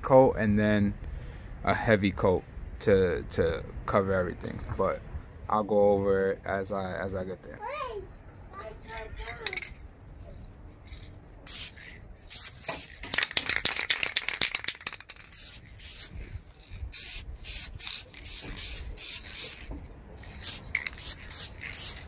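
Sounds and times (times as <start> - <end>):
spray can hissing: 11.4 - 22.0.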